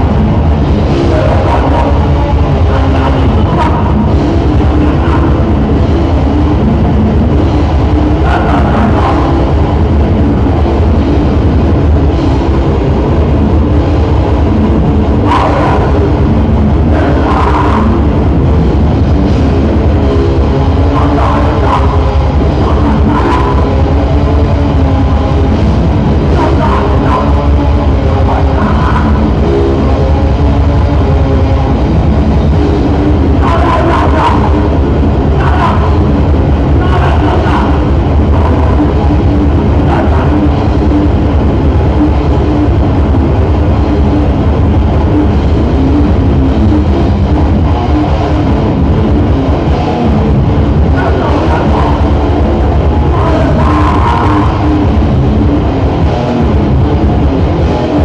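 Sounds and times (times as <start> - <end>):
bass guitar: 0.0 - 58.0
distorted electric guitars: 0.0 - 58.0
heavy metal band playing: 0.0 - 58.0.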